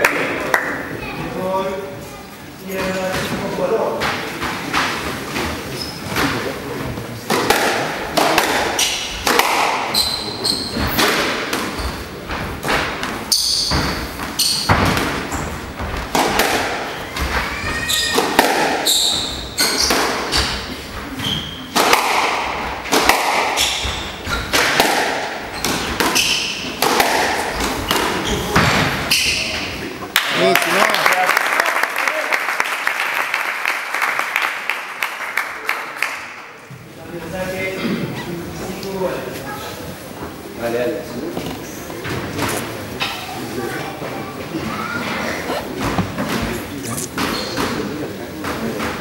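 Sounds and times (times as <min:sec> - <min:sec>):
shoe squeaks on wooden floor: 0:05.7 - 0:06.2, 0:09.9 - 0:11.0, 0:13.3 - 0:15.6, 0:16.9 - 0:18.2, 0:18.8 - 0:21.7, 0:25.5 - 0:26.7, 0:45.5 - 0:47.8
squash ball hits: 0:07.3 - 0:10.0, 0:10.7 - 0:17.4, 0:18.1 - 0:20.6, 0:21.5 - 0:29.6.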